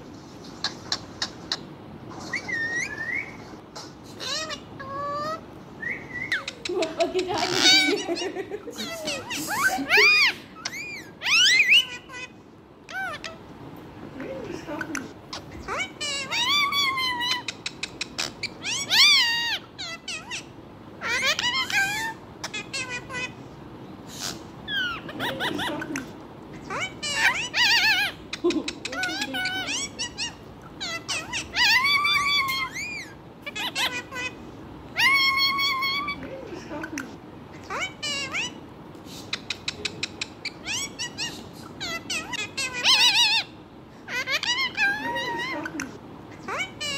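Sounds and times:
parakeet meowing calls: 0.6 - 3.5, 4.1 - 6.7, 7.3 - 13.5, 15.3 - 23.4, 24.1 - 36.3, 37.5 - 38.6, 39.3 - 46.9
parakeet clicking: 17.3 - 18.4, 39.3 - 40.6.

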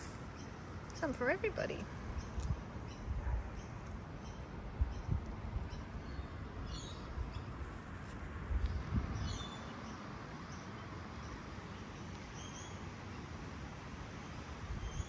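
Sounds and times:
outdoor ambience: 0.0 - 15.0.

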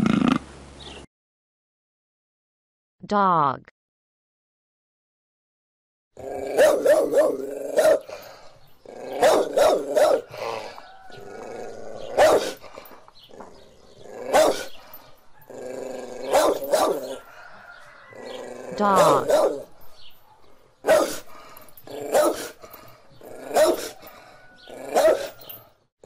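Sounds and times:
dog growling: 6.2 - 19.8, 20.4 - 25.6
dog barking: 6.5 - 8.2, 9.2 - 10.8, 12.2 - 12.6, 14.3 - 14.7, 16.2 - 17.4, 18.9 - 19.7, 20.3 - 21.3, 22.1 - 22.6, 23.5 - 24.0, 24.9 - 25.4.

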